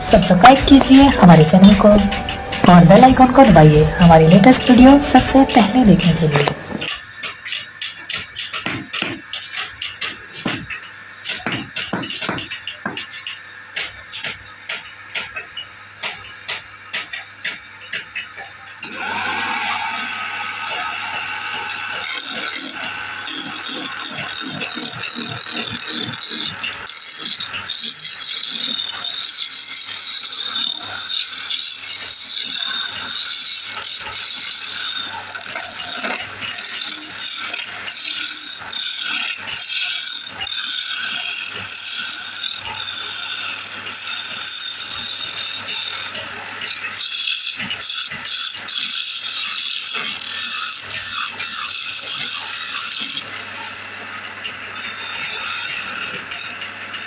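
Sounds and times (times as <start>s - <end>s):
lathe motor hum: 0.0s - 6.9s, 18.8s - 51.1s
chisel scraping spinning wood: 20.6s - 53.3s.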